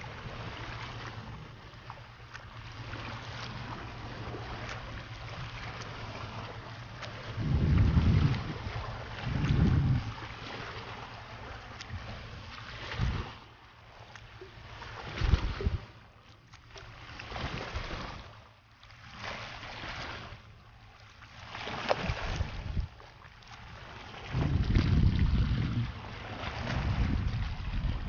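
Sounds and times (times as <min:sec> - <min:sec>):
paddle swishing water: 0:00.0 - 0:28.0
wind rumble on microphone: 0:03.0 - 0:13.4, 0:14.9 - 0:16.0, 0:21.9 - 0:23.0, 0:23.6 - 0:28.0.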